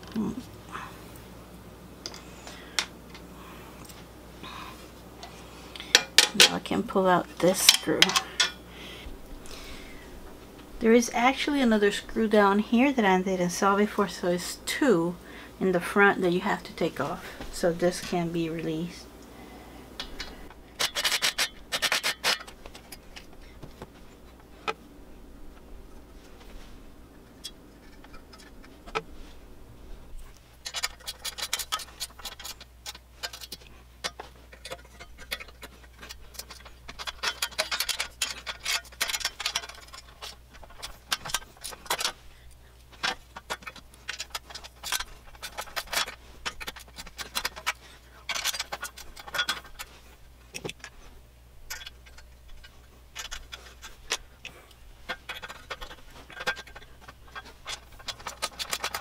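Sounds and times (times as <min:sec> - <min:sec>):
clicks and rattles of metal parts: 0:02.0 - 0:04.0, 0:05.2 - 0:06.9, 0:07.5 - 0:08.7, 0:20.0 - 0:24.8, 0:27.2 - 0:29.3, 0:30.2 - 0:59.0.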